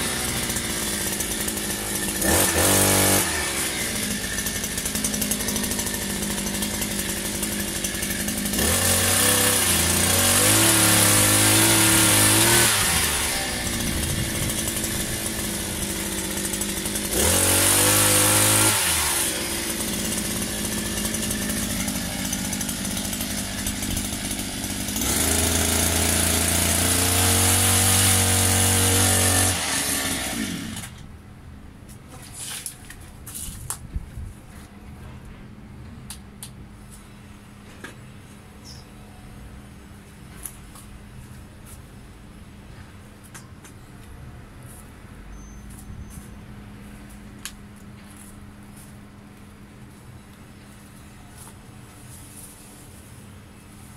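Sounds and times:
small petrol engine idling and revving: 0.0 - 31.0.

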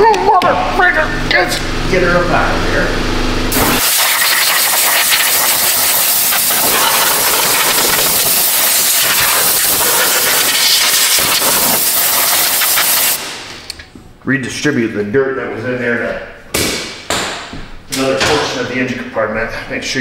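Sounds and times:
compressed air blow gun hissing: 3.5 - 13.2.

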